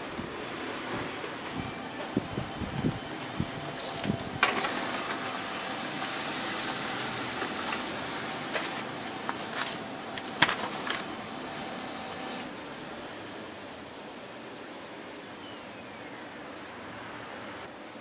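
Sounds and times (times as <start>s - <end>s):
laser printer whirring: 0.0s - 18.0s
printer clicks: 3.9s - 5.4s.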